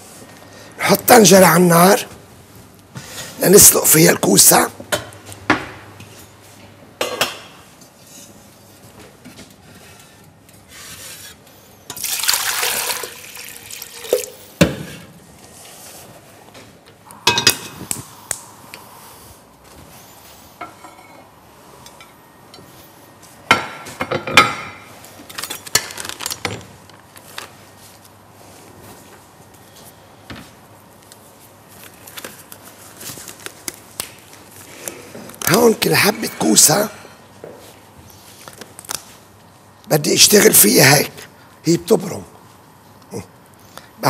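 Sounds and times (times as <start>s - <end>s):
water running into a pot: 11.9s - 14.4s.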